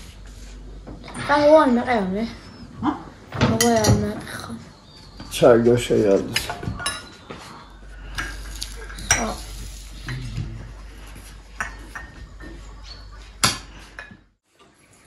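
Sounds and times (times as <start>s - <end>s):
dishes and cutlery clinking: 3.4s - 4.3s, 6.2s - 7.3s, 8.2s - 10.4s, 11.6s - 14.8s.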